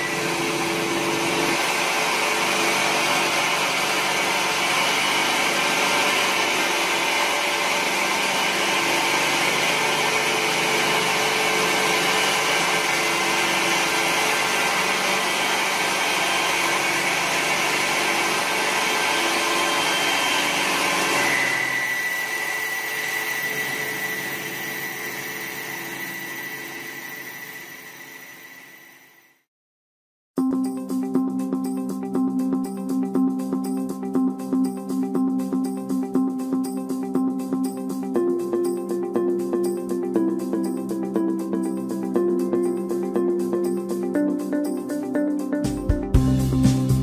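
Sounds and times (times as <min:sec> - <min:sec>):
thin high whine: 0:00.0 - 0:18.0, 0:18.7 - 0:29.5
wood lathe cutting: 0:00.0 - 0:29.1.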